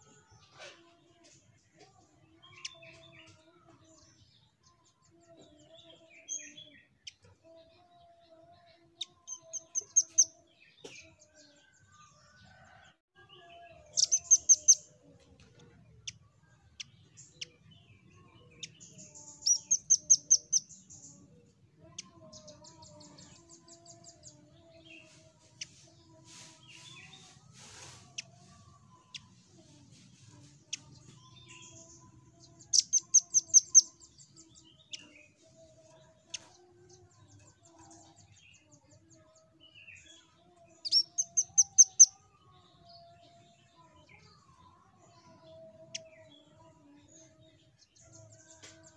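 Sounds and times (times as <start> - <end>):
faint bird chirps: 13.5 - 15.0.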